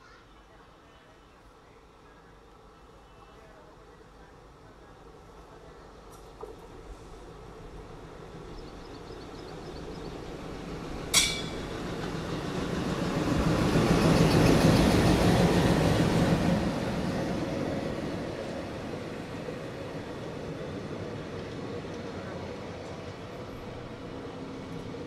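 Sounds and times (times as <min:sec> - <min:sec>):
train coaches rolling past: 0:00.7 - 0:25.0
diesel locomotive engine passing: 0:03.7 - 0:25.0
sharp metallic clank: 0:11.1 - 0:11.7.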